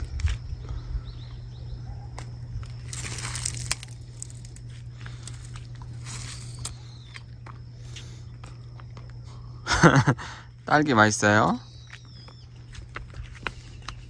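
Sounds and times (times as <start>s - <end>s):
steady low hum: 0.0s - 14.0s
raspberry bush leaves rustling: 2.6s - 6.8s
small stem snaps and clicks: 2.9s - 4.6s.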